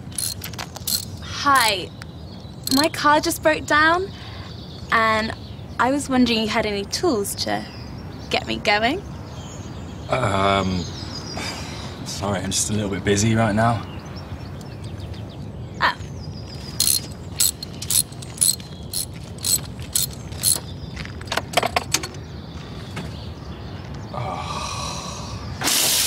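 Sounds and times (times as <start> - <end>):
hand tools clinking on metal: 0.0 - 1.8, 2.6 - 2.9, 16.8 - 20.6.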